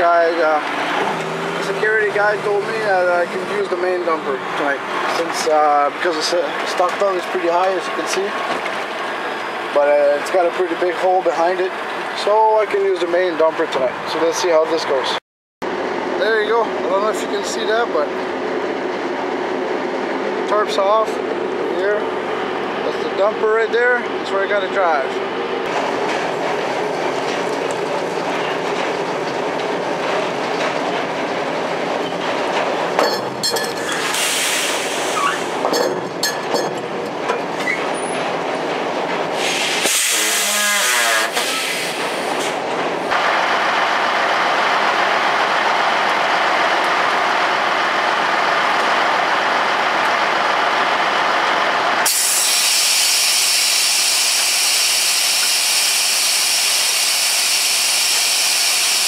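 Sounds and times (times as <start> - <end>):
heavy machinery running: 0.0 - 12.6, 15.7 - 59.0
metal clanks and squeals: 32.0 - 38.3, 39.9 - 42.5
loud even hiss: 34.0 - 35.6, 39.4 - 42.5, 52.1 - 59.0.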